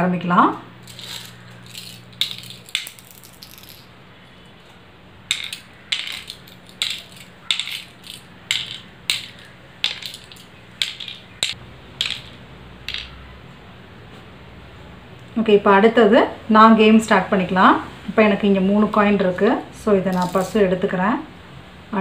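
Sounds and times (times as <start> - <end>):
shell counters clicking on wood: 0.8 - 3.9, 5.3 - 13.2, 20.1 - 20.6.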